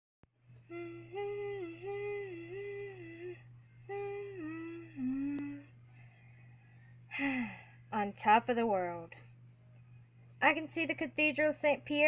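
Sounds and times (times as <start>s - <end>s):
faint electrical hum: 0.3s - 12.0s
person humming a tune: 0.6s - 5.8s.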